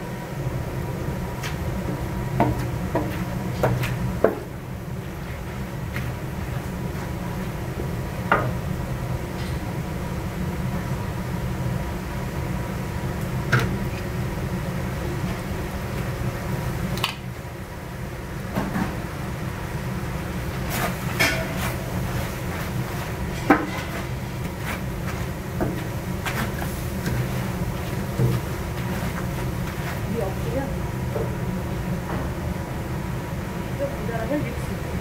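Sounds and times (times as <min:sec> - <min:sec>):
wooden spatula scraping wok: 0:20.6 - 0:30.8.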